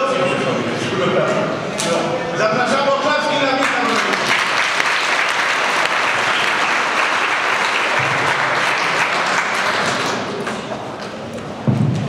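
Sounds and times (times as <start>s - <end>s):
audience applause: 3.5s - 11.2s.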